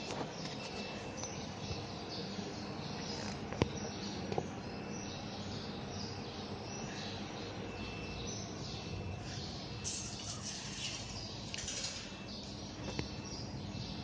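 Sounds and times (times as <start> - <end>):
workshop background noise: 9.2 - 13.2.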